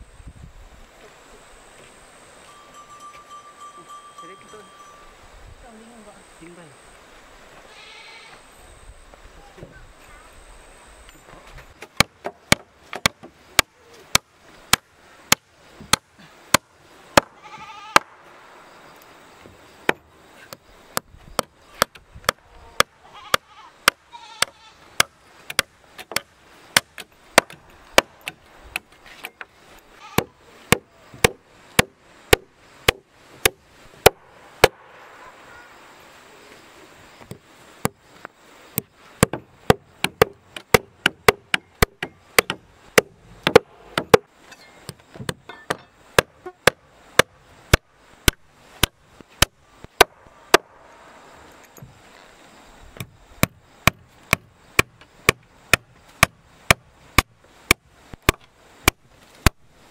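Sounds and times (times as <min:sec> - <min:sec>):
hammer driving nails into wood: 0:39.2 - 0:44.3.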